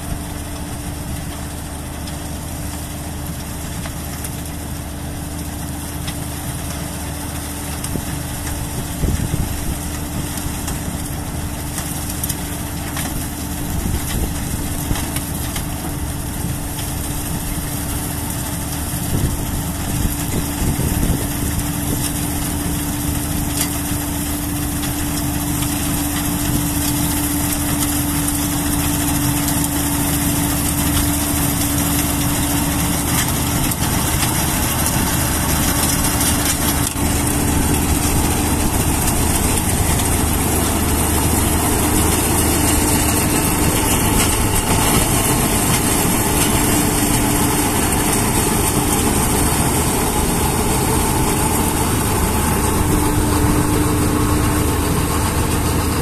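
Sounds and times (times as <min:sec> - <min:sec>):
combine harvester running: 0:00.0 - 0:56.0.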